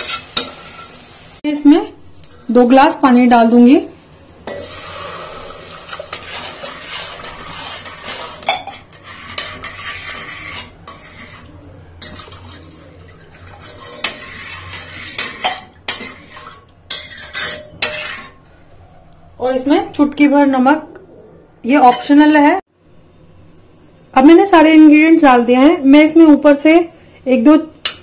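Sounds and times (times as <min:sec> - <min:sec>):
water pouring into a pot: 0:04.6 - 0:07.6, 0:12.1 - 0:15.2
spoon stirring and clinking: 0:13.2 - 0:18.3.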